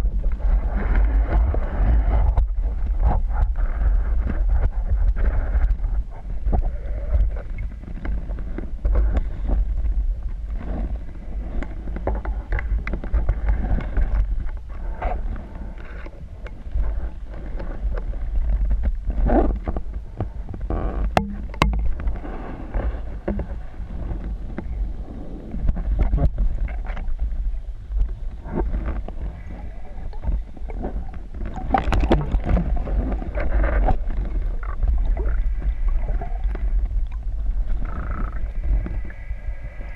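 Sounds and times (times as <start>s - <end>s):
underwater rumble of moving water: 0.0s - 39.9s
muffled knocks and clicks: 21.0s - 22.1s.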